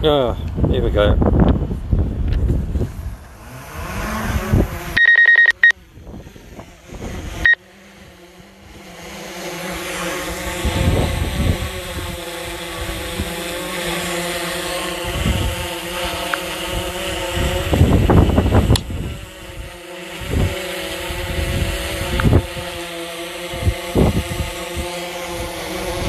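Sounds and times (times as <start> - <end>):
wind rumble: 0.0 - 5.0
drone propellers buzzing: 0.0 - 26.0
short electronic beeps: 5.0 - 5.7.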